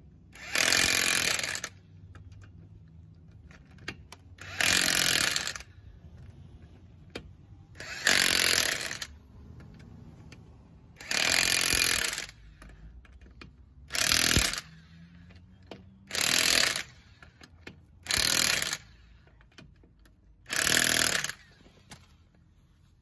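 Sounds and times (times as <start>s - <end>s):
impact wrench hammering lug nuts: 0.3s - 2.3s, 3.5s - 5.7s, 7.1s - 9.1s, 11.0s - 15.0s, 15.7s - 19.7s, 20.4s - 21.7s.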